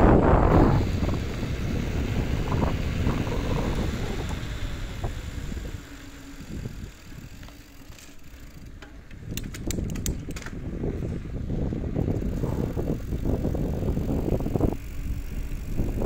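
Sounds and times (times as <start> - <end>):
wind buffeting microphone: 0.0 - 7.5, 8.5 - 16.0
bicycle rolling on tarmac: 0.0 - 16.0
light sharp clicks: 8.8 - 10.6.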